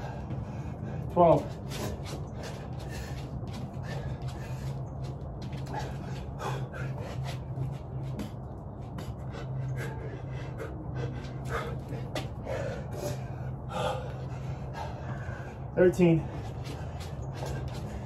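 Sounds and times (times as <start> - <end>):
steady low hum: 0.0 - 18.0
person breathing hard and gasping: 9.1 - 15.7.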